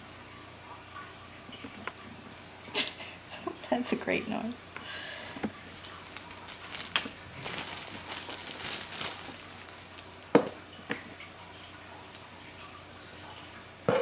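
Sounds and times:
paper packaging rustling: 5.7 - 10.7.

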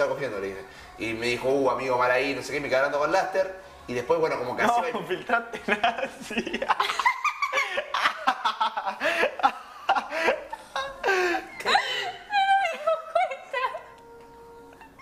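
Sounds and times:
young people laughing: 5.5 - 13.9.

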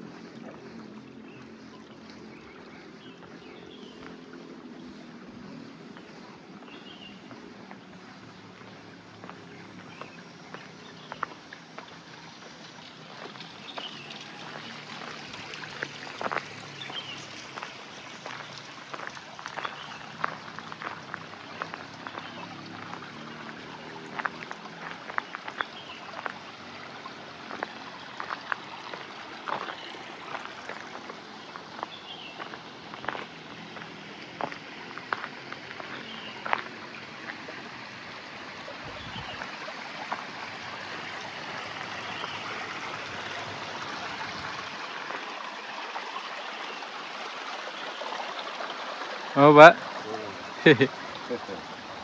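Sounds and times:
stream water rushing: 0.0 - 52.0.

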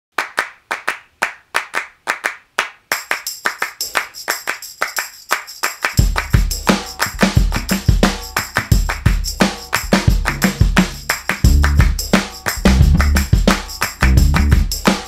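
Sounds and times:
rhythmic hand claps: 0.2 - 15.0
bass and drums: 6.0 - 15.0.

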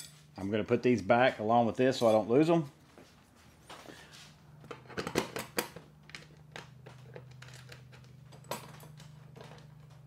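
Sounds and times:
tools and parts clicking: 4.7 - 10.0.

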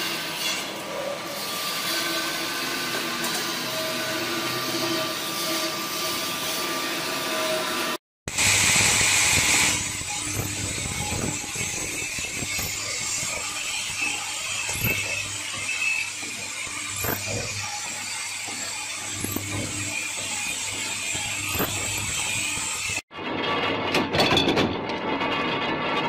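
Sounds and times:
drilling machine running: 8.3 - 23.0
sharp machine clack: 8.5 - 23.0.

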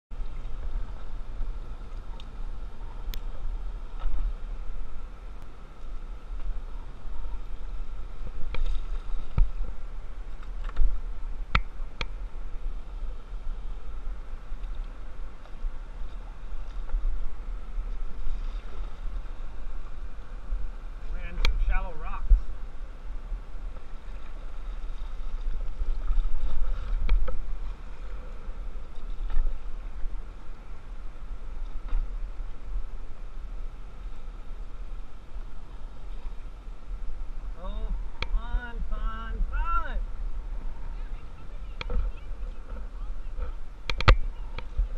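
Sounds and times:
paddle strokes in water: 0.1 - 38.4
steady low rumble: 0.1 - 44.9.

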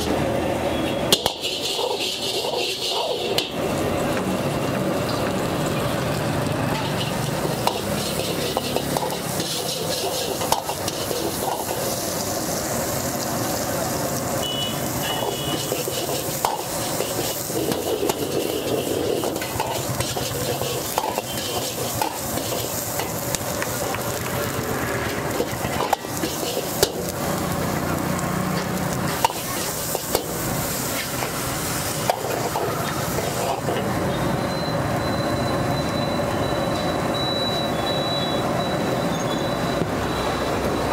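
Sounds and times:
food sizzling in wok: 0.0 - 40.9
ladle clanking against wok: 1.1 - 3.6, 6.7 - 12.0, 15.5 - 23.8, 28.5 - 33.9
metal ladle scraping wok: 1.1 - 3.6, 6.7 - 12.6, 14.9 - 23.9, 25.0 - 27.3, 28.5 - 34.0.

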